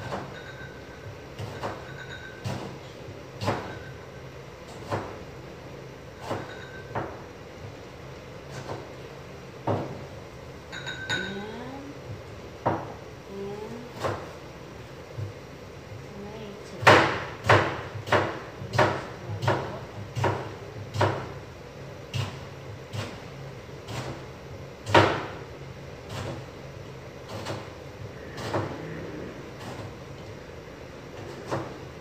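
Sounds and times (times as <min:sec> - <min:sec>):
knife chopping on cutting board: 0:03.4 - 0:03.8, 0:04.7 - 0:05.2, 0:14.0 - 0:14.4, 0:16.8 - 0:21.4, 0:22.1 - 0:24.2, 0:24.8 - 0:25.4, 0:27.3 - 0:27.7, 0:28.4 - 0:28.8, 0:31.2 - 0:31.8.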